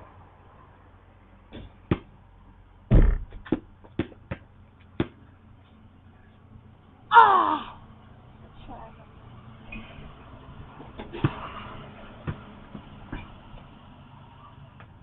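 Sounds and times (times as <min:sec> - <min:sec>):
basketball bouncing: 0:01.5 - 0:02.1, 0:02.9 - 0:05.2, 0:12.2 - 0:13.3.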